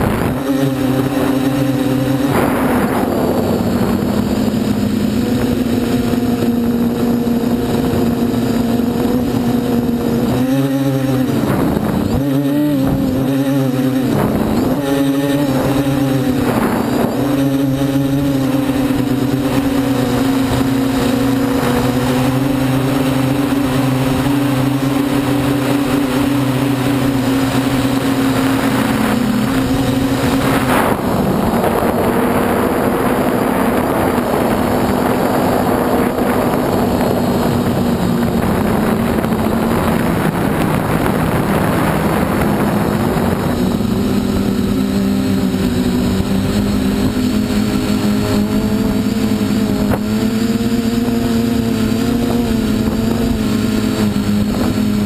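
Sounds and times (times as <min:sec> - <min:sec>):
quadcopter motors buzzing: 0:00.0 - 0:55.0.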